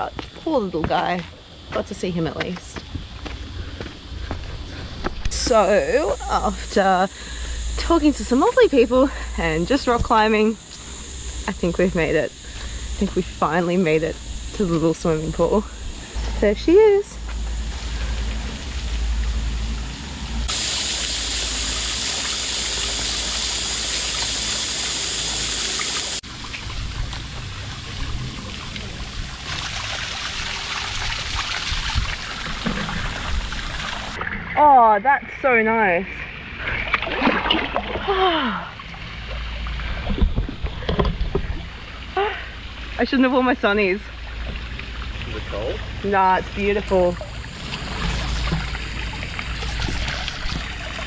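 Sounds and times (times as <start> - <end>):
waterfall splashing into pool: 20.4 - 34.3, 44.2 - 51.0
water sloshing and splashing: 26.2 - 51.0.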